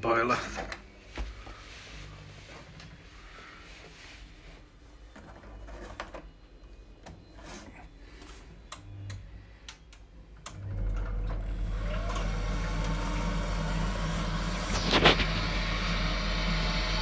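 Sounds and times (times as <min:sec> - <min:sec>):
circulation pump humming: 0:10.4 - 0:17.0
faint rising whine: 0:11.6 - 0:17.0.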